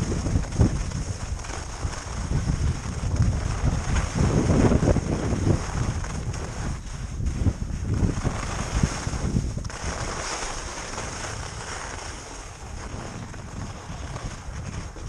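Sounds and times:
skis hissing over packed snow: 0.0s - 15.0s
wind buffeting microphone: 0.0s - 15.0s.

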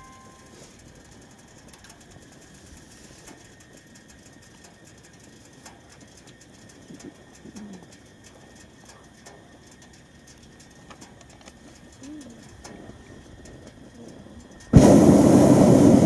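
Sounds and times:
faint pigeon cooing: 12.0s - 12.9s.

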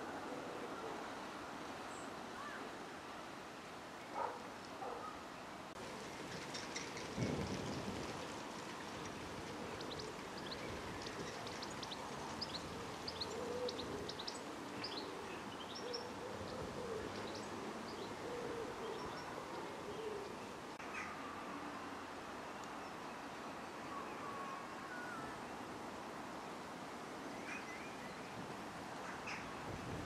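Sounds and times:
steady background hiss: 0.0s - 30.0s
small birds chirping: 9.0s - 18.2s
pigeon cooing: 13.2s - 20.4s.

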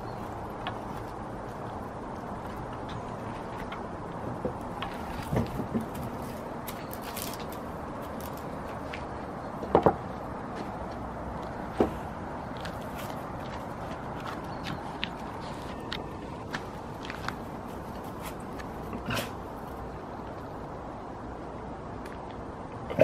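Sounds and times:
steady background noise: 0.0s - 23.0s
dog chewing wooden stick: 10.9s - 20.5s.

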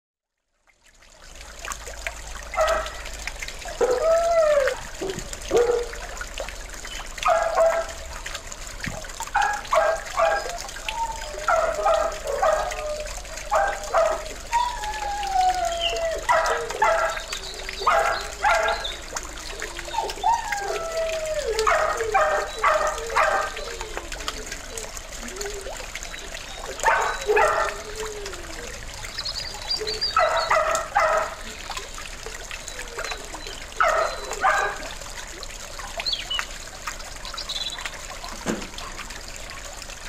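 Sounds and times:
pond fountain trickling: 0.3s - 40.0s
dogs barking: 2.5s - 3.2s, 3.8s - 6.1s, 7.1s - 8.1s, 9.3s - 25.4s, 26.2s - 28.4s, 29.7s - 31.8s, 32.4s - 35.0s.

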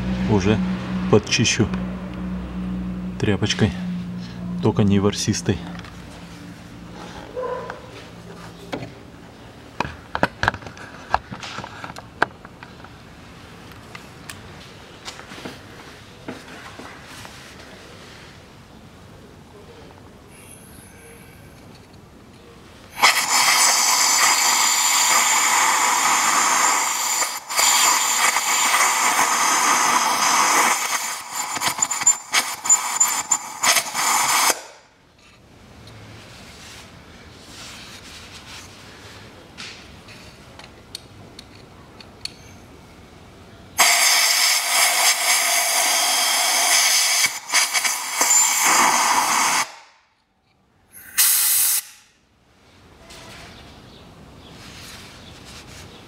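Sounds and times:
compressed-air blow gun hissing: 22.9s - 34.7s, 43.8s - 49.8s, 51.0s - 51.9s.

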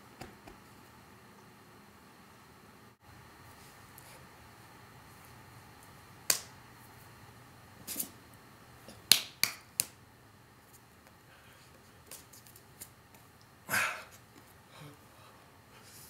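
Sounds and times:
hands slapping and clapping: 6.3s - 6.5s, 9.0s - 10.0s, 12.0s - 13.3s.

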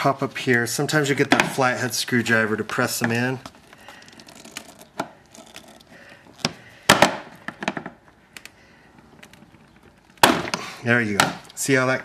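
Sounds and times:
hard plastic clicking and creaking: 2.6s - 11.6s.

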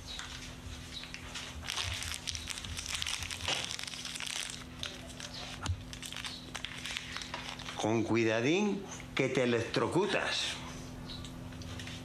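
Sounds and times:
steady low hum: 0.0s - 12.0s
plastic wrapper crinkling: 1.1s - 7.9s.

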